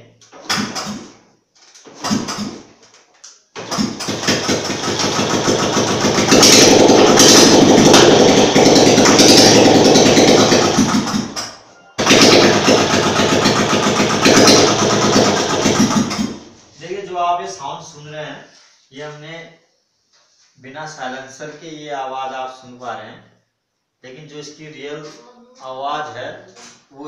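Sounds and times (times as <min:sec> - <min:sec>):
motorcycle engine starting and running: 0:01.9 - 0:02.7, 0:03.6 - 0:16.6.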